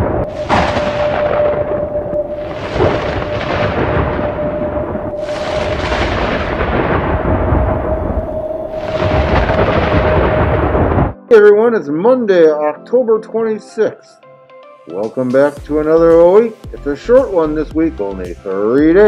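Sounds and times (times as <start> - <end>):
steady held tone: 0.0 - 11.0
thunderclaps with rolling rumbles: 0.0 - 11.2.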